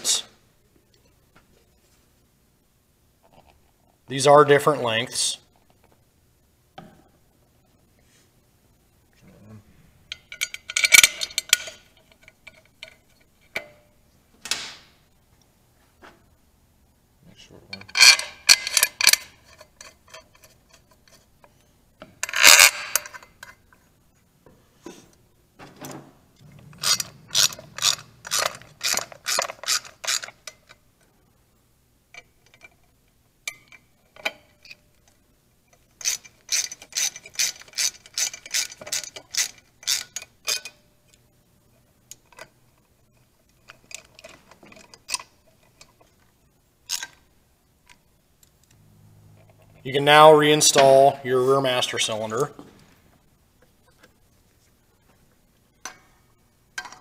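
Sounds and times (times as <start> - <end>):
metallic clatters: 10.1 - 13.9, 25.6 - 30.8
socket ratchet clicking: 26.8 - 30.8.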